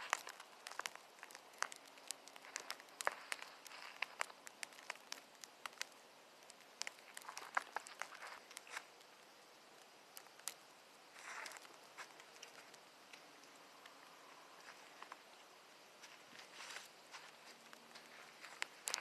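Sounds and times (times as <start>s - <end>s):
sleet ticking on surfaces: 0.0s - 13.6s
soft crunching: 0.0s - 19.0s.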